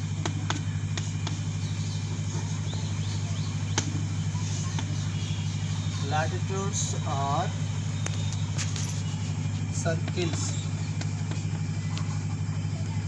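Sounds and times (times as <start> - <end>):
chalk tapping and scratching: 0.2 - 1.7.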